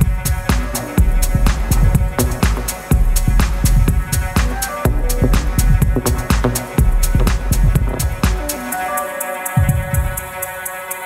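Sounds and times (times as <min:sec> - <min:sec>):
electronic music with heavy bass: 0:00.0 - 0:11.0.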